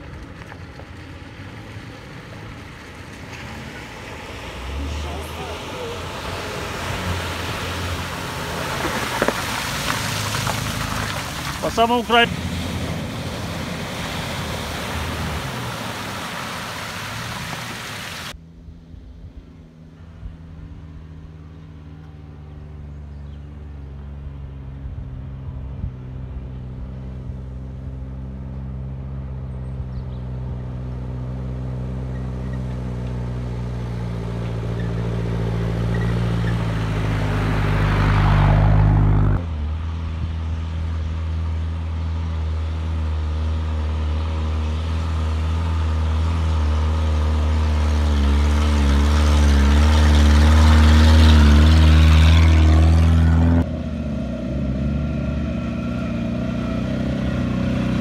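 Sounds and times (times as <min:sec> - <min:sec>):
tyres on gravel: 0:00.0 - 0:18.4
off-road vehicle engine: 0:00.0 - 0:58.0
second car engine approaching: 0:00.0 - 0:58.0.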